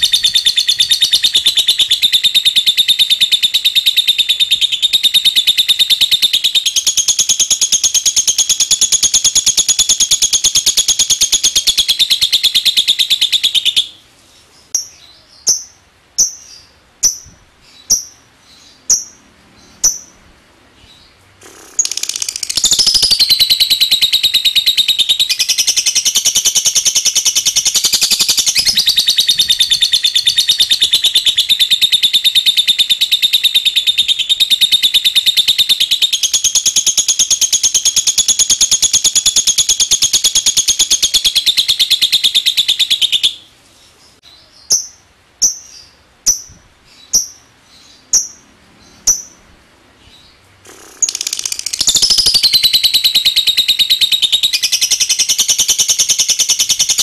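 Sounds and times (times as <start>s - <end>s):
bird chattering trill: 0.0s - 14.0s, 14.7s - 20.2s, 21.4s - 43.5s, 44.6s - 49.4s, 50.6s - 57.0s
bird chips: 21.4s - 31.8s, 50.7s - 57.0s.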